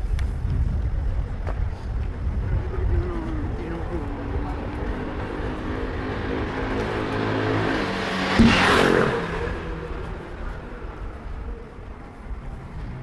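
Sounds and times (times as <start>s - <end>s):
vehicle passing: 4.6s - 11.2s
engine running: 6.4s - 11.4s
short knock: 8.4s - 8.9s.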